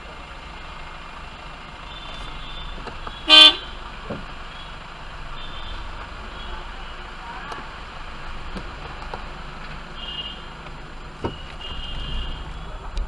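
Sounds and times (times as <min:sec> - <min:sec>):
car horn toot: 0:01.9 - 0:03.8, 0:10.0 - 0:10.5, 0:11.2 - 0:12.9.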